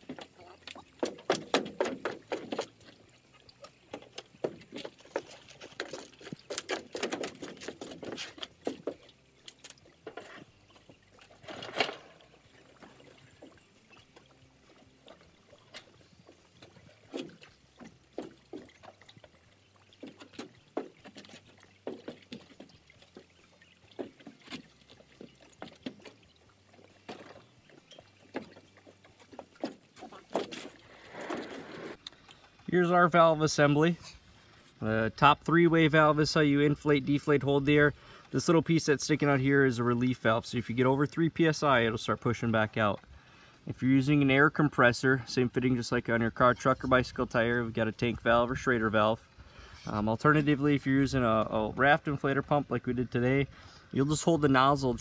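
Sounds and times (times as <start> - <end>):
water sloshing and trickling: 0.0 - 55.0
knocks on boat lift frame: 1.0 - 2.7.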